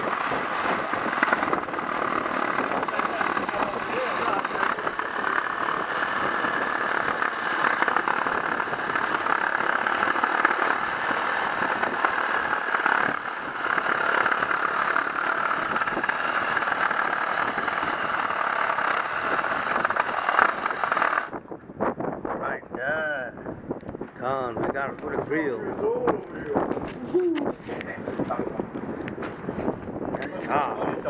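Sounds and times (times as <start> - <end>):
reciprocating saw cutting log: 0.0 - 21.4.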